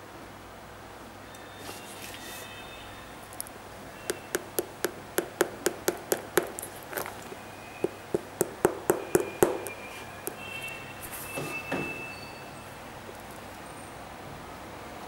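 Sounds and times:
fingertips tapping on sneaker sole: 4.0s - 10.8s.

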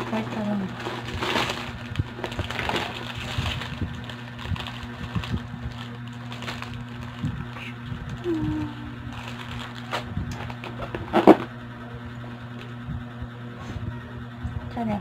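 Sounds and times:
plastic wrapper crinkling: 0.0s - 11.5s
paper rustling: 0.8s - 7.6s.

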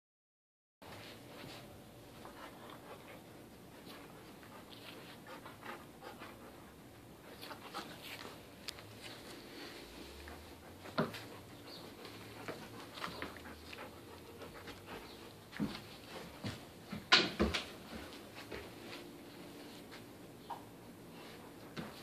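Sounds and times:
puppy panting: 2.2s - 16.8s.

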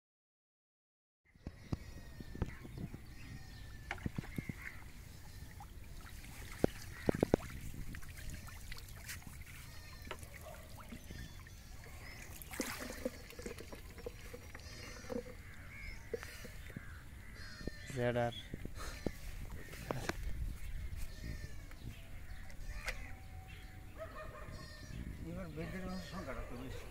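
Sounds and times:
birds calling: 1.3s - 26.9s
water splashing: 4.0s - 17.0s
water pouring from a mug: 10.8s - 16.8s.

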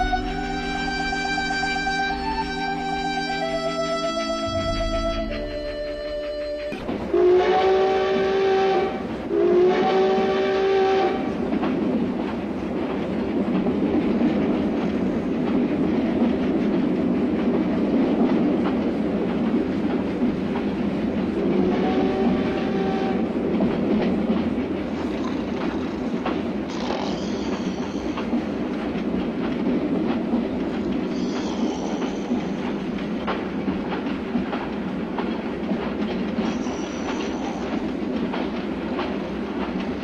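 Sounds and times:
steam locomotive whistle: 0.0s - 11.4s, 21.6s - 23.4s
train rumble and clickety-clack: 0.0s - 40.0s.

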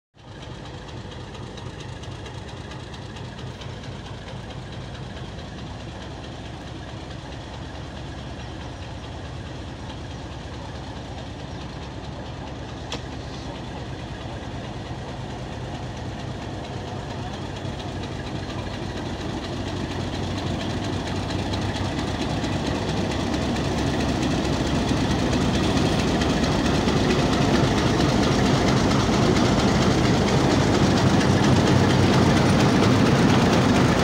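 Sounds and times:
diesel locomotive engine hum: 0.2s - 34.0s.

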